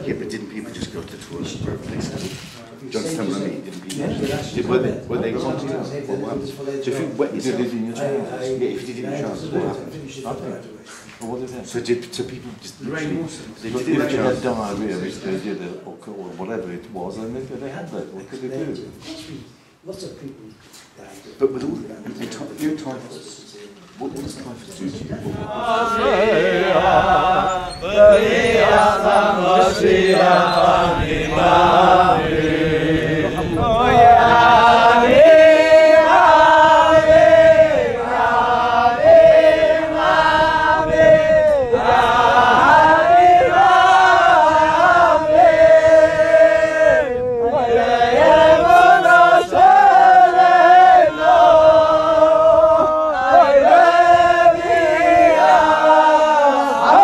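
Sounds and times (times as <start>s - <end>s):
voices singing a slow chant: 25.2s - 57.0s.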